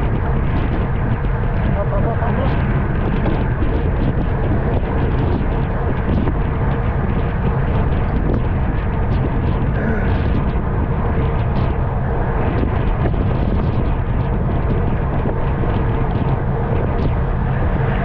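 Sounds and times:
wind rush on microphone: 0.0 - 18.0.

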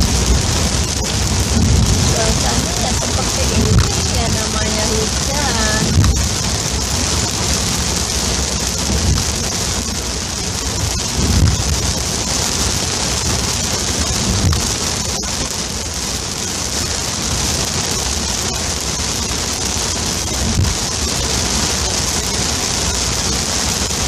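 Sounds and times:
dull low thumps: 0.0 - 12.1
heavy rain on car windshield: 0.0 - 24.0.

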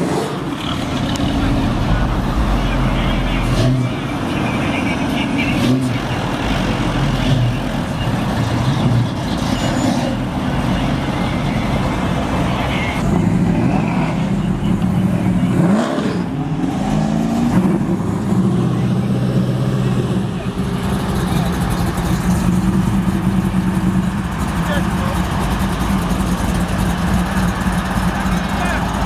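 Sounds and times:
engine revving up: 0.0 - 4.3, 5.5 - 10.4, 13.0 - 23.9
car engines rumbling: 0.0 - 29.0.

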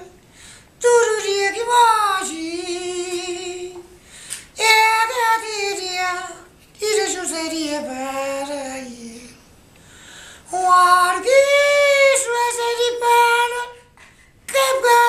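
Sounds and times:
old man singing unaccompanied: 0.0 - 0.2, 0.8 - 9.5, 10.5 - 15.0
man breathing: 0.2 - 0.8, 4.0 - 4.5, 9.8 - 10.5.

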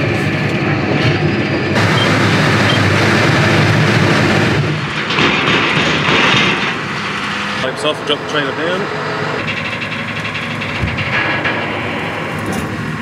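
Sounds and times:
rattling clatter of machine: 0.0 - 13.0
tractor engine running: 0.0 - 13.0.

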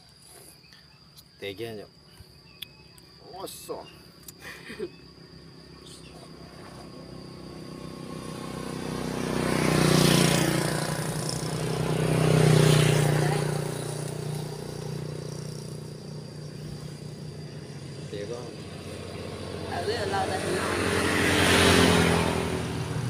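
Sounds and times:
vehicles passing close by: 5.0 - 23.0.

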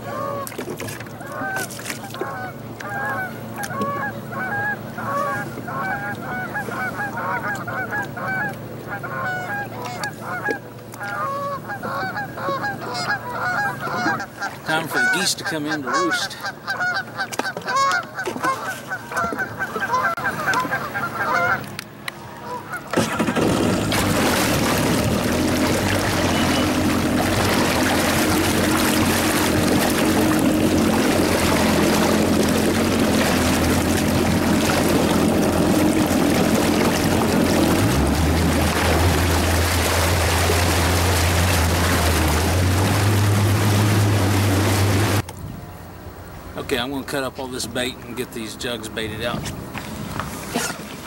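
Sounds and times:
geese honking: 0.0 - 0.5, 1.2 - 23.9, 24.7 - 45.2
jet ski engine running: 0.0 - 51.0.

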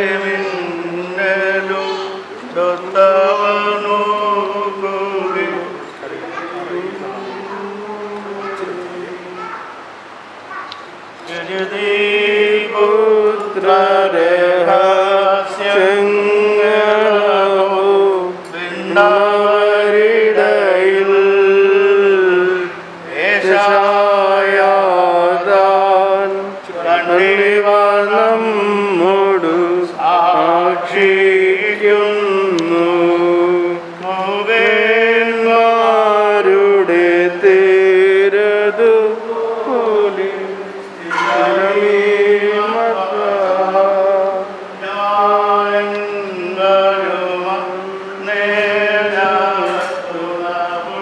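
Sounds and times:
man chanting a hymn: 0.0 - 9.8, 11.2 - 51.0.

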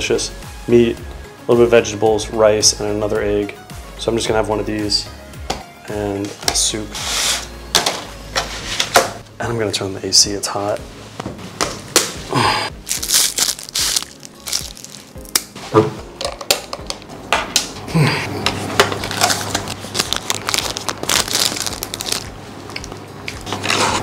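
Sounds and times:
plastic packaging crinkling: 12.8 - 15.4, 19.0 - 23.0.

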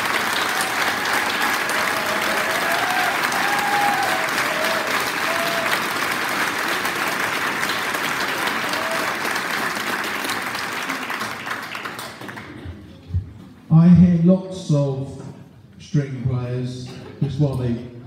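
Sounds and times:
large audience applauding: 0.0 - 12.8.

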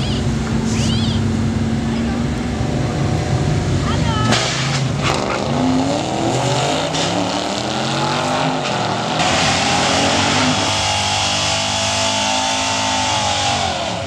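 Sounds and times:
drag racing cars accelerating: 0.0 - 14.0.

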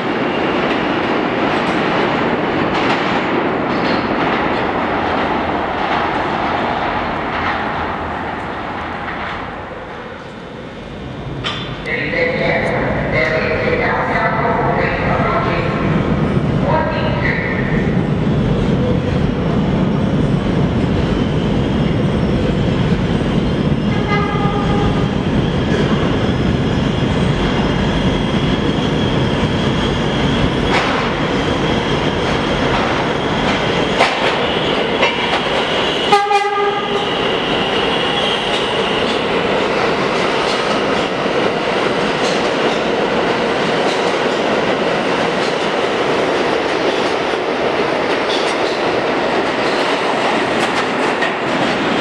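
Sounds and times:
train wheels rumbling on rails: 0.0 - 52.0
train horn: 24.0 - 25.0, 36.1 - 37.1.

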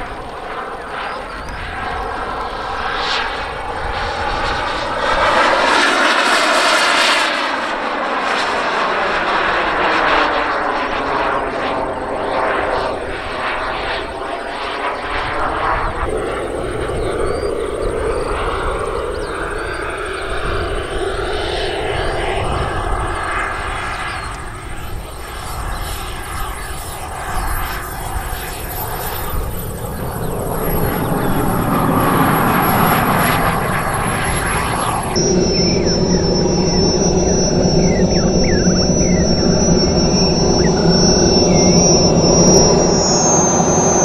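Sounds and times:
model jet engine whine: 0.0 - 44.0.

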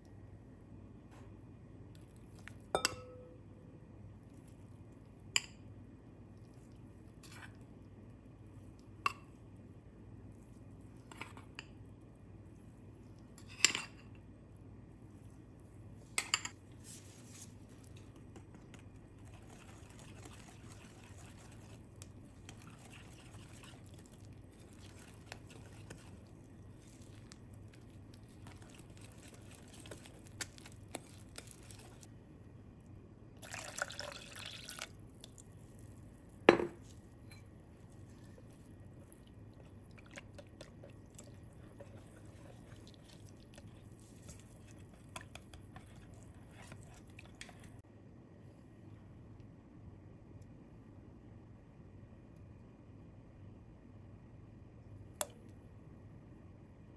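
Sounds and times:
whisk clinking on glass bowl: 2.7 - 3.3
whisk scraping and stirring: 16.7 - 32.1, 39.6 - 47.8
water pouring from jug: 33.4 - 35.3.

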